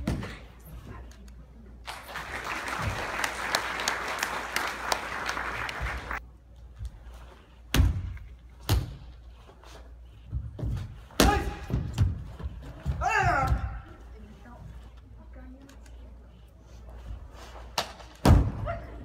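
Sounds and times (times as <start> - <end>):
audience applauding: 1.9 - 6.2.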